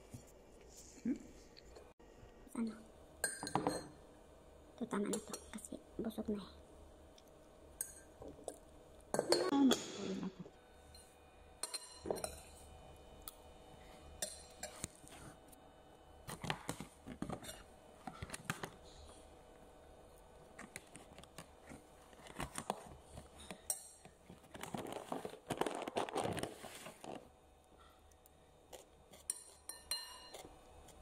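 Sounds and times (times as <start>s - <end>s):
cutlery clinking on a plate: 29.2s - 30.5s.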